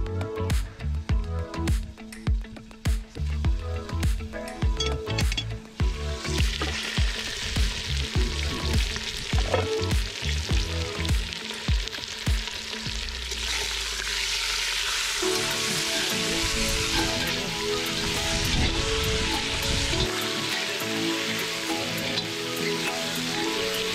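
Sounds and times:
background music with steady beat: 0:00.0 - 0:13.2, 0:15.2 - 0:23.9
chicken sizzling in a pot: 0:05.8 - 0:23.9.

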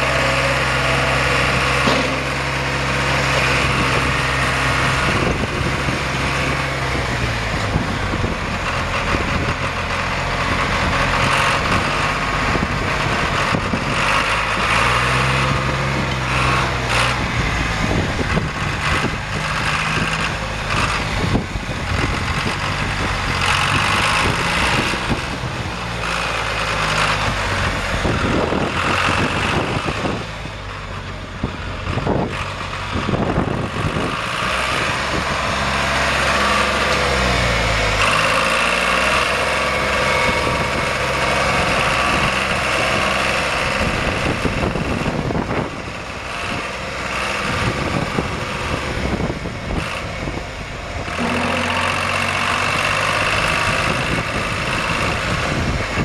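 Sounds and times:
tractor diesel engine running: 0:00.0 - 0:56.0.

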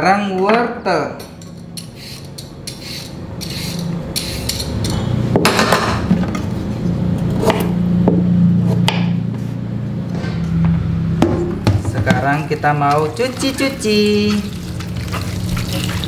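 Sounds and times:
peeler scraping carrot: 0:01.8 - 0:04.8.

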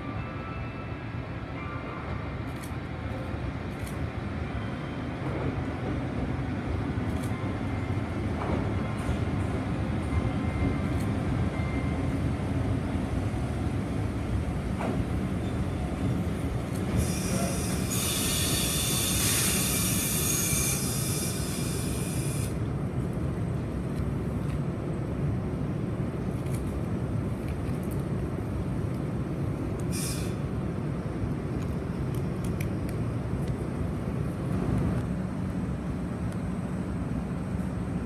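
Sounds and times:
train rolling rumble: 0:00.0 - 0:38.0
high brake squeal: 0:17.0 - 0:22.5, 0:29.9 - 0:30.4.

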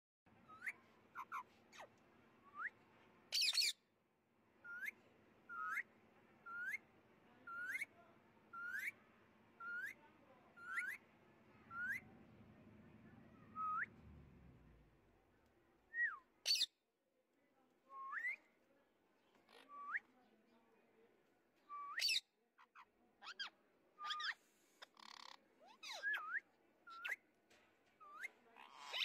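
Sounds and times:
parakeet whistled calls: 0:00.5 - 0:01.9, 0:02.5 - 0:03.8, 0:04.6 - 0:05.9, 0:06.5 - 0:06.8, 0:09.6 - 0:10.0, 0:10.6 - 0:11.0, 0:21.8 - 0:22.2, 0:23.2 - 0:27.2.

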